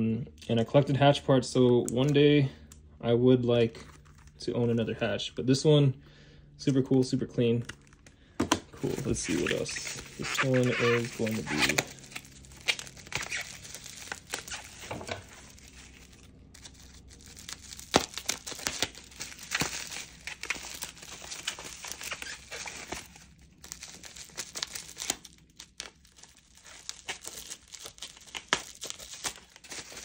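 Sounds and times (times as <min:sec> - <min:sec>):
bubble wrap crinkling: 0:03.6 - 0:04.8, 0:07.4 - 0:30.0.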